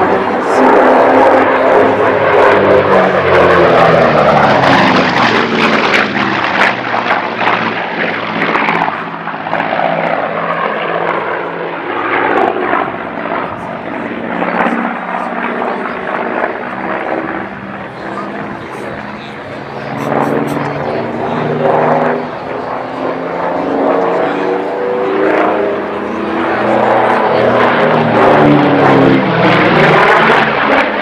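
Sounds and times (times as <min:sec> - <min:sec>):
aircraft radial engines flying past: 0:00.0 - 0:31.0.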